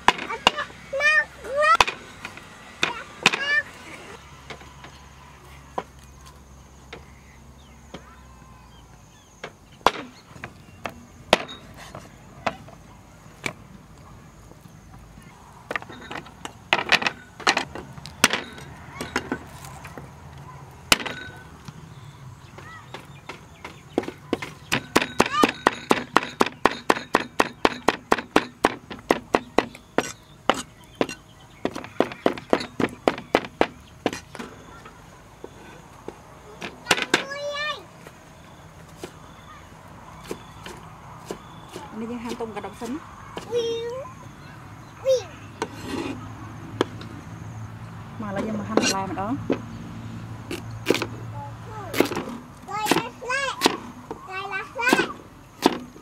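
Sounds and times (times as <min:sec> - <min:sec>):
cleaver chopping meat on wood: 0:22.6 - 0:34.3, 0:51.9 - 0:53.9, 0:54.9 - 0:55.9.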